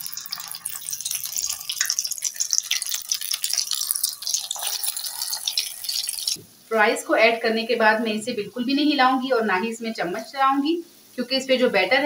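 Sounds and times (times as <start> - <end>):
fries sizzling in hot oil: 0.0 - 6.4.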